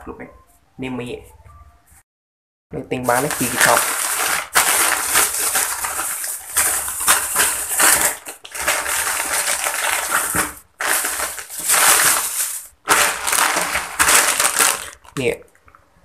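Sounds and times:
plastic bag and packets crinkling: 2.9 - 15.4.

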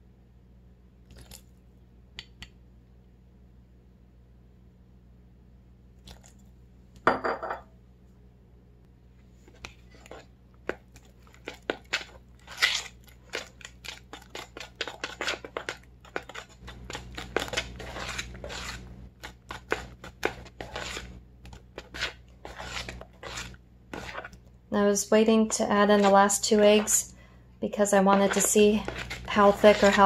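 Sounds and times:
fork beating batter in bowl: 9.4 - 30.0.

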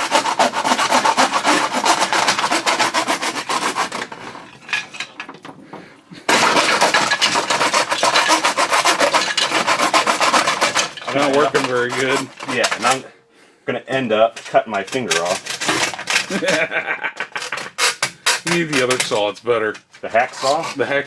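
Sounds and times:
hand saw rasping through plastic: 0.0 - 4.7, 6.3 - 13.0, 14.4 - 16.7, 17.3 - 19.3, 20.2 - 21.0.

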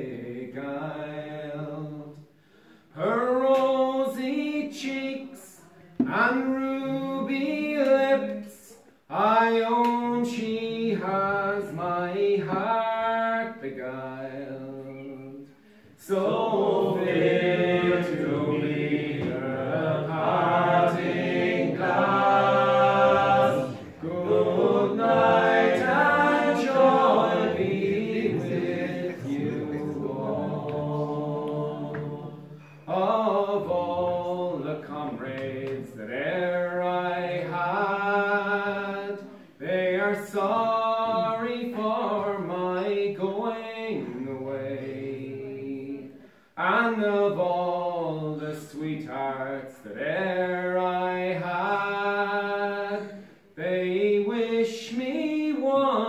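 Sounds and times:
men singing unaccompanied: 16.0 - 56.0.

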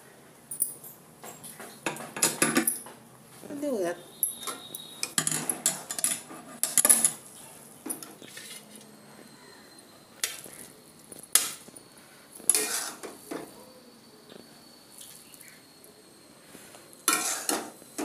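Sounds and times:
ladle scraping steel pan: 12.5 - 13.1, 17.1 - 17.8.

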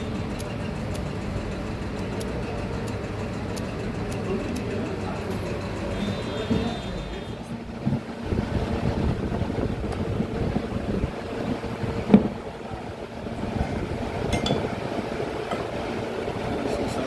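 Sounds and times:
steady low rumble: 7.3 - 17.0.

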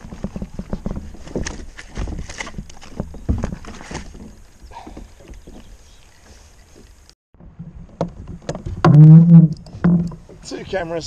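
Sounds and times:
faint wind and water hiss: 0.0 - 7.2, 9.6 - 11.0.

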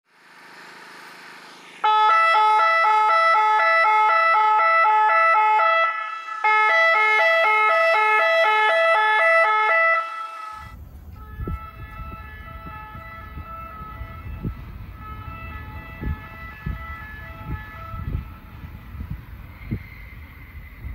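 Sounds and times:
two-tone warning horns: 1.6 - 20.9.

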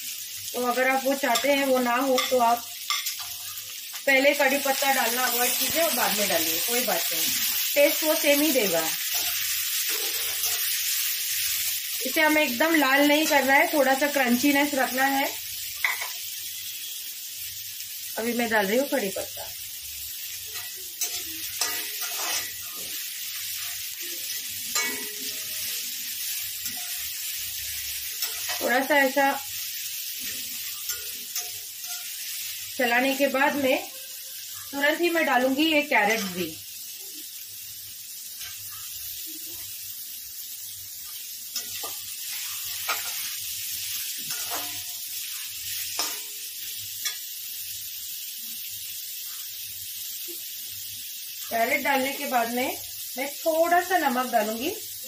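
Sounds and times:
food sizzling in hot oil: 0.0 - 55.0
metal spatula scraping pan: 9.1 - 10.8, 20.6 - 23.0, 41.6 - 43.4, 44.2 - 45.0
steel spatula scraping pan: 20.6 - 23.0, 44.2 - 44.9.

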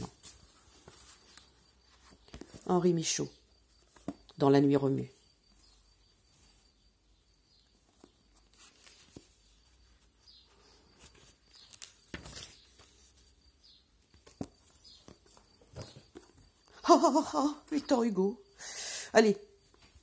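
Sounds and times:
paper pages rustling: 0.0 - 2.7, 7.8 - 16.6.

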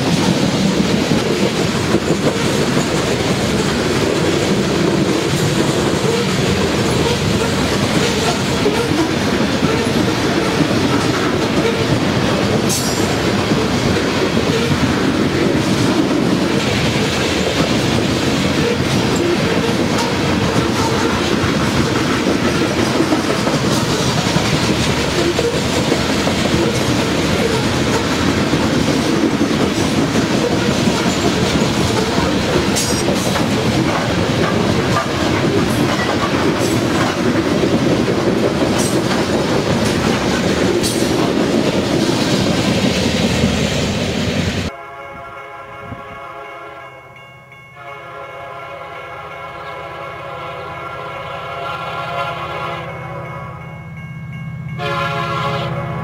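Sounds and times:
wheels clacking over rail joints: 0.0 - 44.2
train wheels rumbling on rails: 0.0 - 44.8
distant locomotive horn: 5.9 - 12.0, 18.6 - 21.3, 44.7 - 47.0, 47.8 - 53.8, 54.8 - 56.0.

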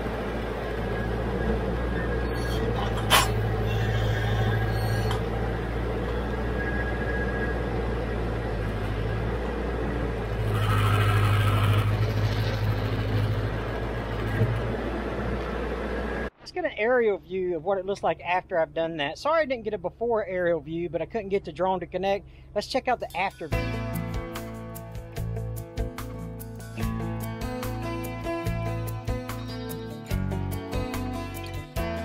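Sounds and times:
tractor diesel engine running: 0.0 - 16.4.

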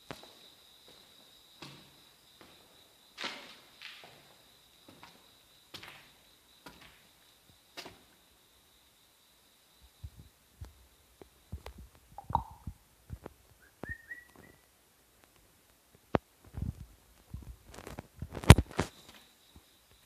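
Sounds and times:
knocks and low thumps: 11.5 - 13.3.

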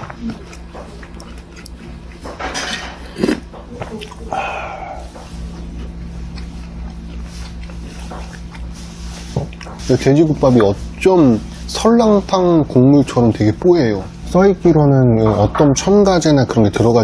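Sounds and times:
person chewing: 0.0 - 11.6
low steady hum: 0.0 - 17.0
person slurping soup: 3.0 - 9.0.

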